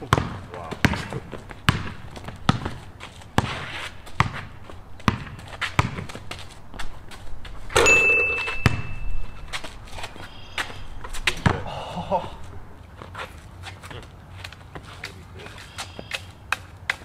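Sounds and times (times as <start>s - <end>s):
basketball bouncing on concrete: 0.0s - 11.8s
steady high tone: 7.8s - 9.5s.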